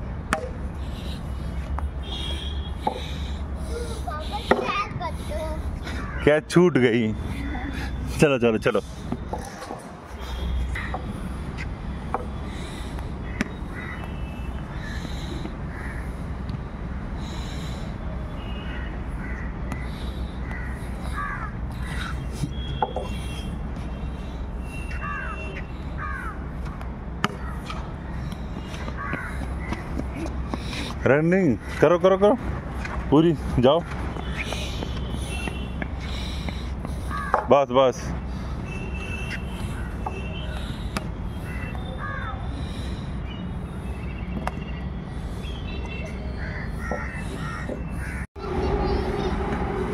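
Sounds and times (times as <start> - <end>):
crows cawing: 5.8 - 6.3, 12.5 - 16.2, 18.4 - 22.3, 24.9 - 26.4, 27.3 - 30.0, 33.8 - 37.5, 41.3 - 42.8, 46.3 - 48.3.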